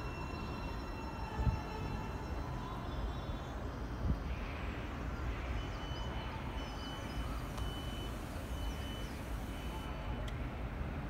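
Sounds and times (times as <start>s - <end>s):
faint chirps: 5.3s - 9.9s
thin high tone: 5.6s - 9.9s.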